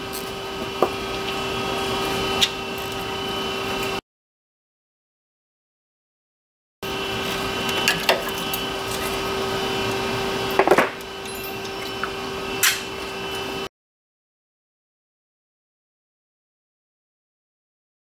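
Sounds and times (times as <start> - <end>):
steady machine hum: 0.0 - 4.0, 6.8 - 13.7.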